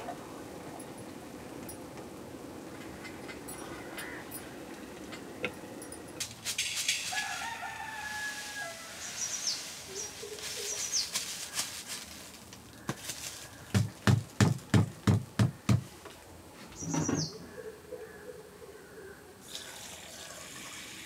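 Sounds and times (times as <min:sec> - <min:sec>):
rooster crowing: 0:07.0 - 0:09.2.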